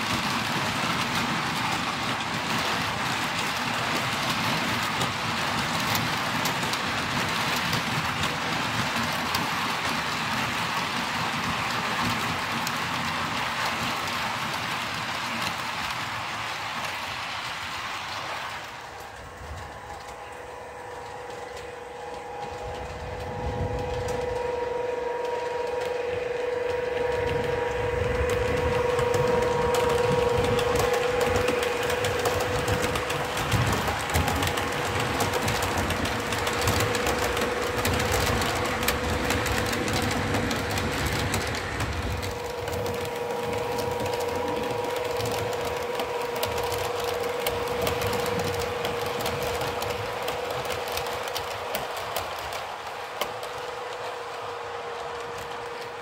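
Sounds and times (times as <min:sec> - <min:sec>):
wheels clicking over rail joints: 0:00.0 - 0:56.0
model train motor whine: 0:00.3 - 0:56.0.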